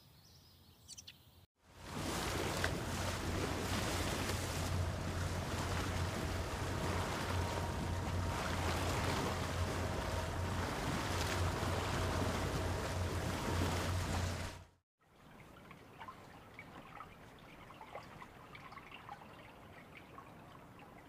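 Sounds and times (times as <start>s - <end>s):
water splashing along boat hull: 1.7s - 14.8s
low rumble: 1.8s - 14.8s.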